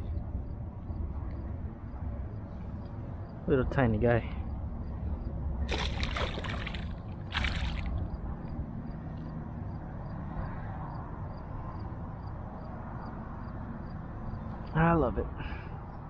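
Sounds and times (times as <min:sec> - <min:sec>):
water splashing: 0:05.7 - 0:08.0.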